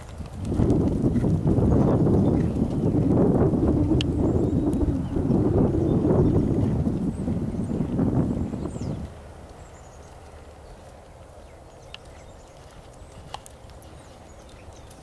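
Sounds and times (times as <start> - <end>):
horse hooves on grass: 0.0 - 15.0
light ticks: 9.1 - 15.0.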